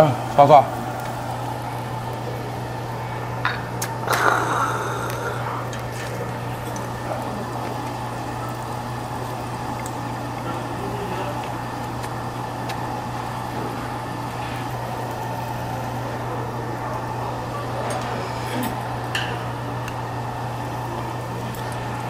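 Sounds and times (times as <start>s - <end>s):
meat sizzling on grill: 0.0s - 22.0s
steady low hum: 0.0s - 22.0s.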